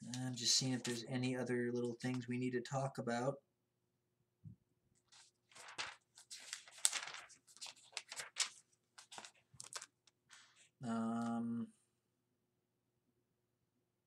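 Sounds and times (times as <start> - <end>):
paper pages rustling: 0.7 - 1.2, 5.0 - 10.7.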